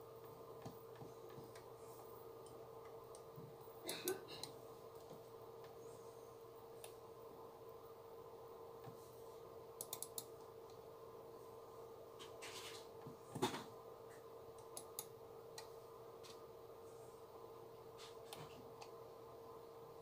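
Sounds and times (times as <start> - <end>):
faint steady hum: 0.0 - 20.0
computer mouse clicks: 9.8 - 10.8, 14.6 - 16.4.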